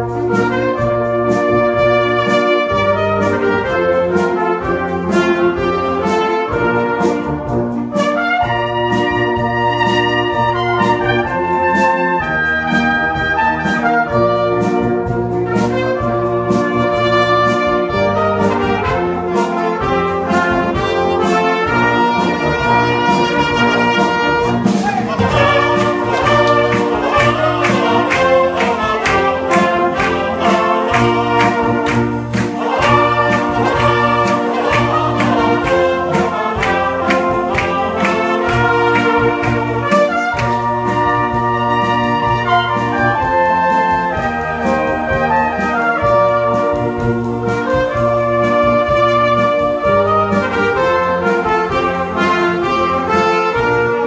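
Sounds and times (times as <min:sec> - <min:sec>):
brass band playing slowly: 0:00.0 - 0:54.0
solo trumpet: 0:00.0 - 0:54.0
drum beat: 0:17.8 - 0:50.1.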